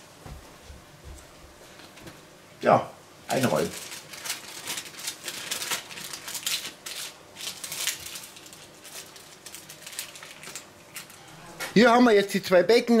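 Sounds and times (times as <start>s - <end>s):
baking paper crinkling: 3.3s - 11.8s.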